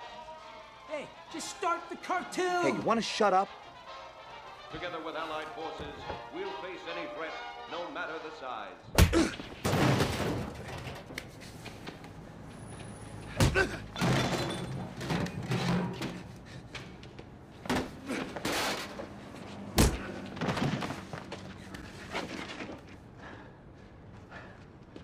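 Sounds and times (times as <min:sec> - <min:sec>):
bodies striking metal trash cans: 0:09.0 - 0:11.1, 0:13.4 - 0:16.3
hard impacts of blows: 0:19.7 - 0:21.3.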